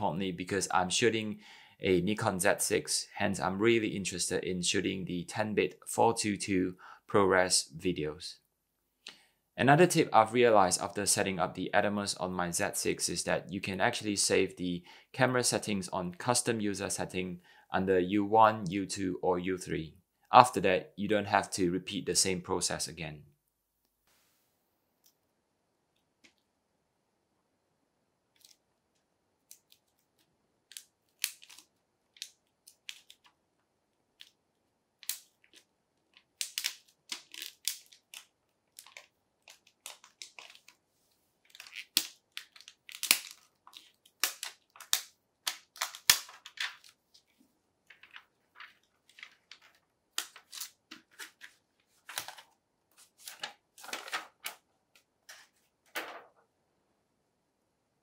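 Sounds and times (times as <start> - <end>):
plastic shrink-wrap crinkling: 35.0 - 40.8, 41.4 - 47.3, 47.9 - 54.6.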